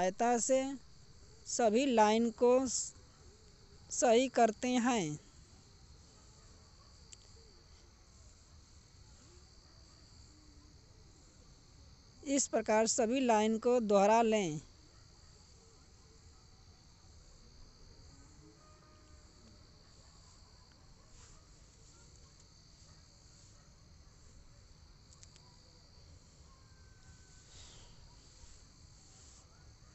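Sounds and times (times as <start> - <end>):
faint high-pitched tone: 18.1 - 20.1.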